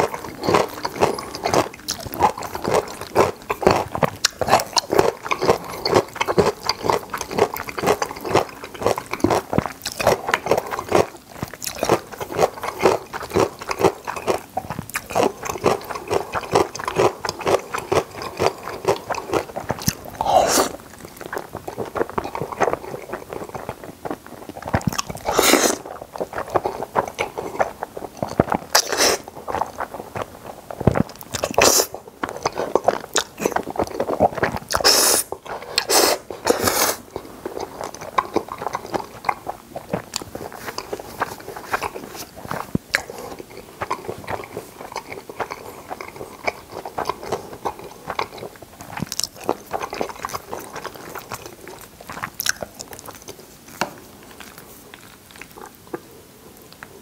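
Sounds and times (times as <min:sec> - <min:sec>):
slurping noodles: 0:00.0 - 0:53.8
wet chewing mouth clicks: 0:00.0 - 0:57.0.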